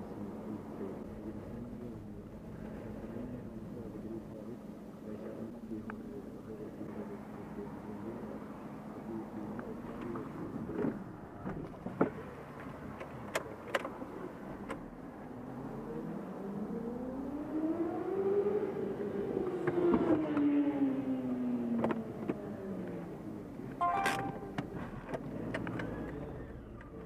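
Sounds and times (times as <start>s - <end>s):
car engine pulling away: 24.2s - 27.0s.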